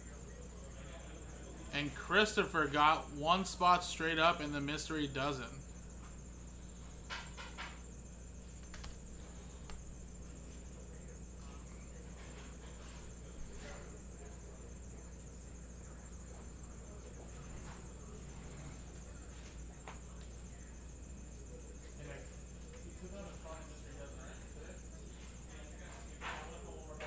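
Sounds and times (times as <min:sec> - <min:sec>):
steady high-pitched whine: 0:00.0 - 0:27.0
faint clicks and taps at a desk: 0:08.6 - 0:09.0.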